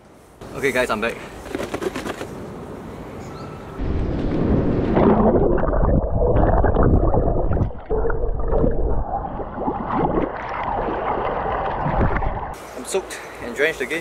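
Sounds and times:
muffled underwater churning and bubbling: 0:04.7 - 0:12.6
water splashing and dripping: 0:04.8 - 0:12.6.

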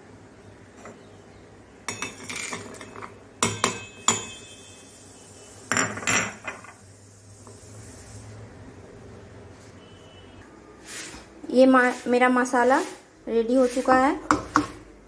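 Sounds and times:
glass clinking on jar: 0:01.9 - 0:04.4.

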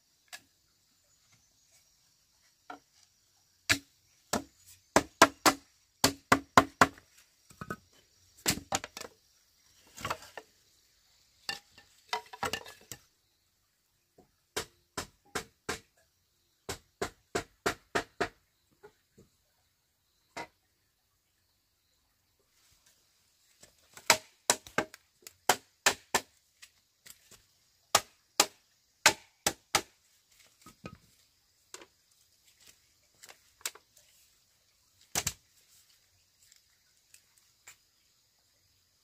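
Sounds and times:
wooden block knocking bamboo: 0:03.7 - 0:09.2, 0:11.5 - 0:13.0, 0:24.0 - 0:26.4, 0:27.9 - 0:30.0.

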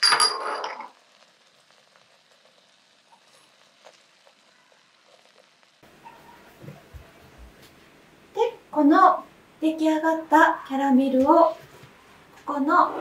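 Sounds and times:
caramel hissing: 0:00.5 - 0:07.2.

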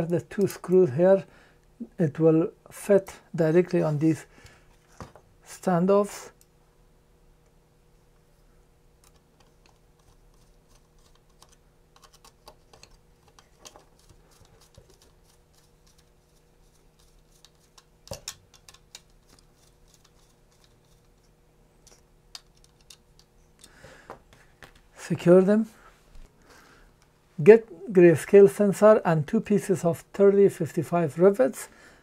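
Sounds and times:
small screws clicking and tapping: 0:17.3 - 0:21.2, 0:21.8 - 0:23.8.

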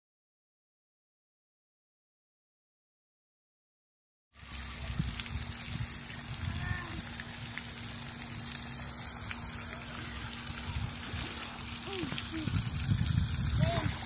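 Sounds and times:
fountain water falling: 0:04.4 - 0:14.0
low rumbling on microphone: 0:09.3 - 0:14.0.

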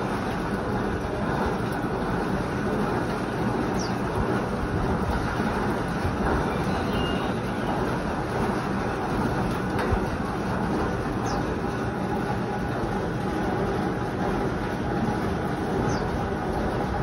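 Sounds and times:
electric fan running: 0:00.0 - 0:17.0.

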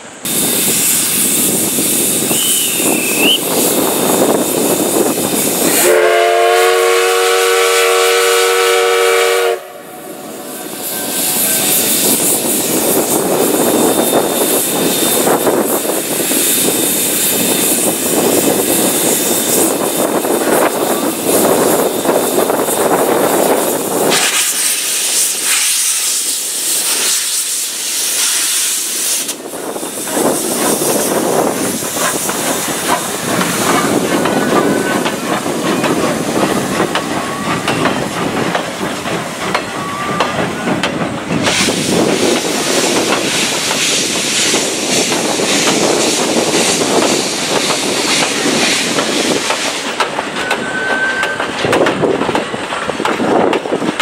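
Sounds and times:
steam locomotive venting steam: 0:00.0 - 0:54.0
steam whistle blast: 0:02.3 - 0:03.5, 0:05.6 - 0:11.6, 0:50.5 - 0:51.5.

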